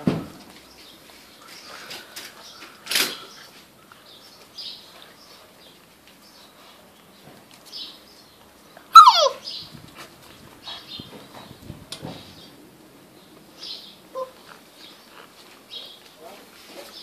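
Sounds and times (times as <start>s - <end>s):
puppy yelp: 8.9s - 9.5s
scuffles and rustles: 9.5s - 12.5s, 14.4s - 17.0s.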